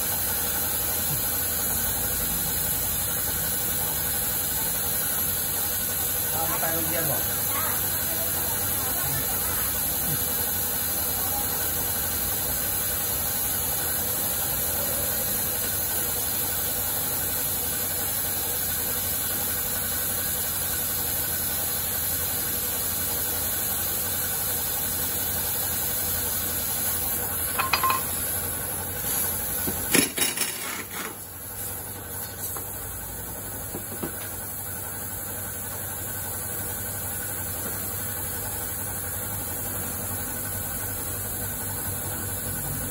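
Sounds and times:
workshop machinery hiss and hum: 0:00.0 - 0:42.9
tools clanking on metal: 0:27.6 - 0:28.2.

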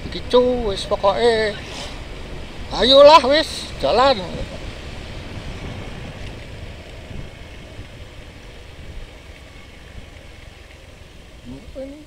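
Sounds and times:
scooter engine hum: 0:00.0 - 0:12.0
wind rumble on microphone: 0:00.0 - 0:12.0.

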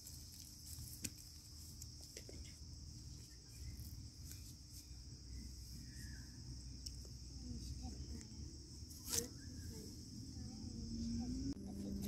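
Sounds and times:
hand rustling leaves picking fruit: 0:00.0 - 0:06.2, 0:08.9 - 0:10.0
crickets chirping: 0:00.0 - 0:12.0.

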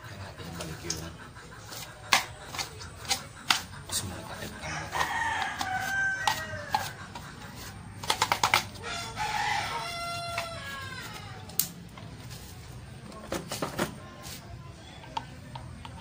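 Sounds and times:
rooster crowing: 0:04.6 - 0:07.0, 0:08.8 - 0:11.4.

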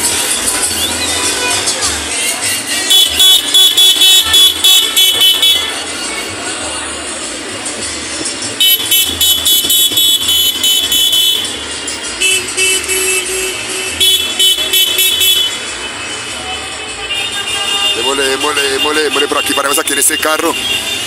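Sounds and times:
vehicle horns tooting: 0:00.0 - 0:06.0, 0:08.5 - 0:21.0
street traffic noise: 0:00.0 - 0:21.0.

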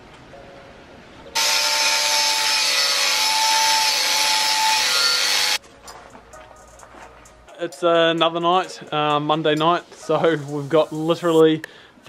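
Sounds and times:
angle grinder cutting steel pipe: 0:01.4 - 0:05.6.

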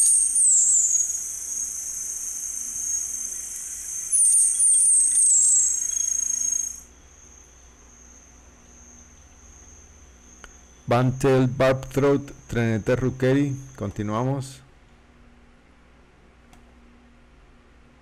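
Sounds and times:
bird singing high falling notes: 0:00.0 - 0:06.9.

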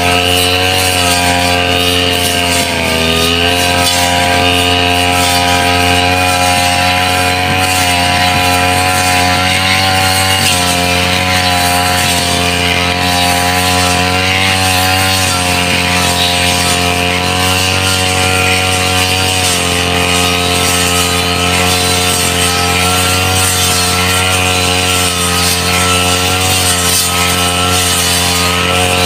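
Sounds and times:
brush cutter cutting grass: 0:00.0 - 0:29.0.

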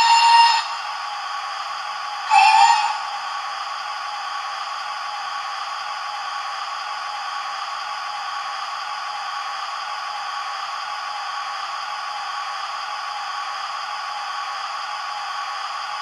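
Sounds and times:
train whistle: 0:00.0 - 0:01.0, 0:02.3 - 0:03.2
steam hiss: 0:00.0 - 0:16.0.

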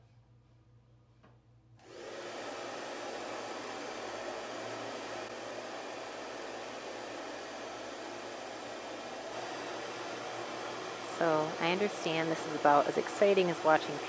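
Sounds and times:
hair dryer blowing: 0:01.8 - 0:14.0.

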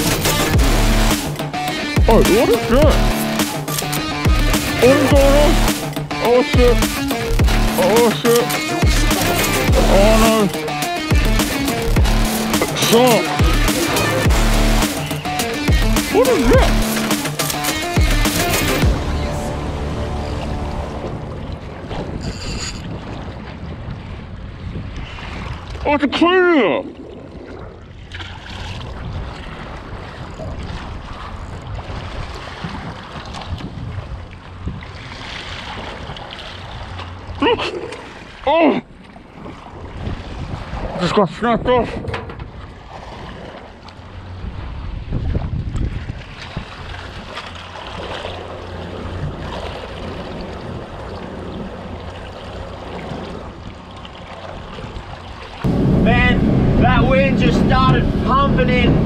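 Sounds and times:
water washing around a boat: 0:00.0 - 0:22.2, 0:22.8 - 0:59.0
wind on microphone: 0:21.0 - 0:25.8, 0:27.0 - 0:36.9, 0:39.4 - 0:41.0, 0:44.4 - 0:47.4, 0:54.6 - 0:59.0.

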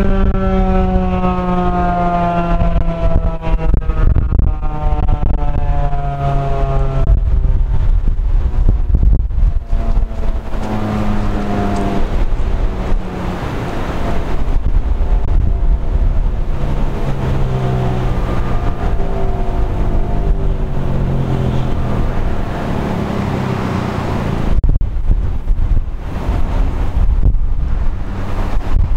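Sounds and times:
siren winding down: 0:00.0 - 0:07.4, 0:09.5 - 0:14.0, 0:15.3 - 0:24.3
wind noise on microphone: 0:00.0 - 0:28.9.

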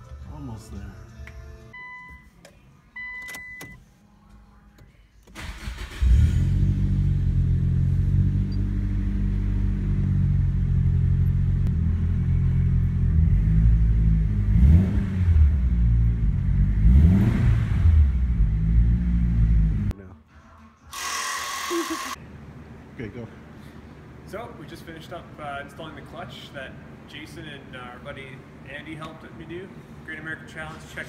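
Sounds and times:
car engine starting and idling: 0:05.2 - 0:19.9
engine revving: 0:05.4 - 0:19.9.

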